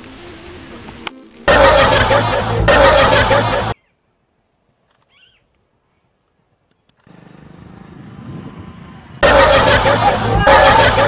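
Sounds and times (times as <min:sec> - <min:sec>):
motorcycle engine approaching: 0:07.0 - 0:11.0.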